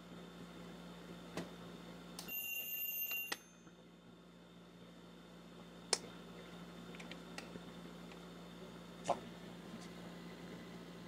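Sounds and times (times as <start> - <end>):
alarm clock bell ringing: 2.3 - 3.6.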